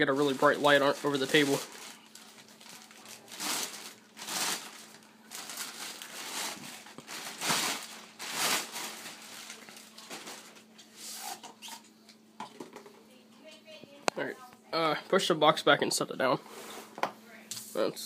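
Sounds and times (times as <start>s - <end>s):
plastic wrapping crinkling: 0.0s - 11.4s.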